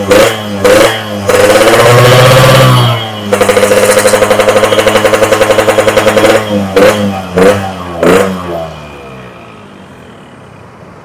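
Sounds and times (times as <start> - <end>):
motorcycle engine revving: 0.0 - 9.6
motorcycle engine idling: 0.0 - 10.2.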